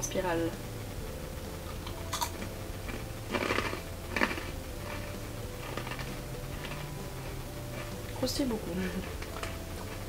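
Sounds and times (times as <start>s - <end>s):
crunchy snack being chewed: 1.8s - 7.0s.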